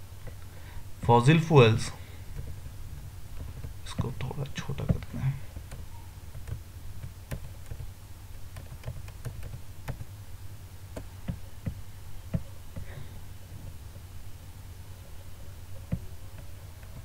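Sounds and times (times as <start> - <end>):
low steady hum: 0.0 - 17.0.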